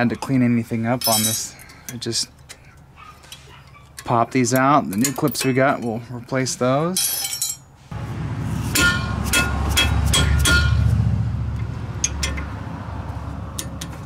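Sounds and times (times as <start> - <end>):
sharp metal clinks: 1.0 - 1.5.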